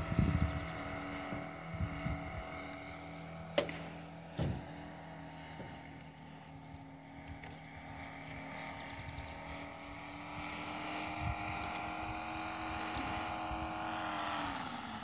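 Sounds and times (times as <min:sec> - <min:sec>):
wind gusts on microphone: 0:00.0 - 0:02.9, 0:08.6 - 0:14.4
model airplane engine droning: 0:00.0 - 0:15.0.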